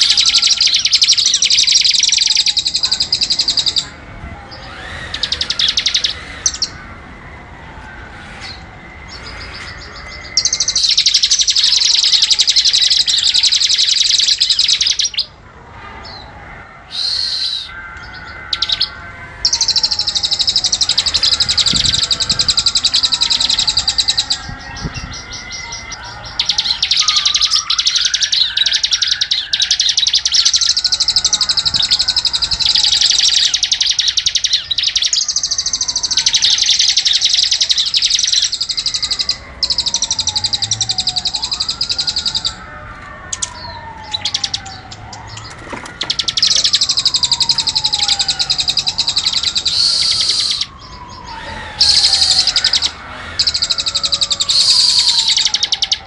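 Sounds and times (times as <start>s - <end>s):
high buzzing bird trills: 0.0s - 7.0s, 8.1s - 15.3s, 16.0s - 42.6s, 43.3s - 56.0s
bird whistle falling in pitch: 16.9s - 17.8s, 46.0s - 50.7s, 51.3s - 53.7s.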